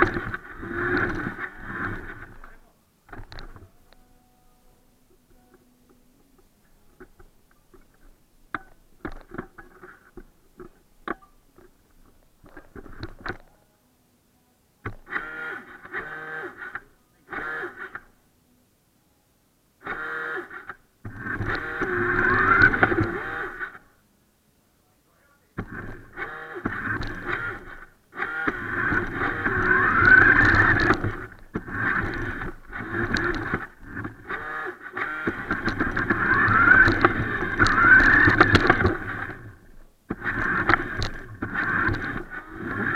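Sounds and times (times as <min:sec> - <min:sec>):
toy car electric motor whining: 0:00.0 - 0:02.5, 0:15.1 - 0:18.1, 0:19.8 - 0:23.8, 0:25.7 - 0:42.9
plastic toy car handling clicks: 0:26.7 - 0:39.3.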